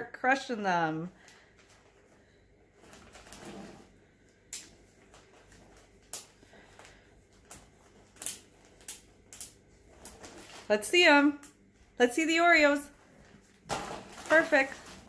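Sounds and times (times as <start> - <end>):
plastic bag rustle: 1.3 - 4.2, 4.8 - 10.9, 12.9 - 15.0.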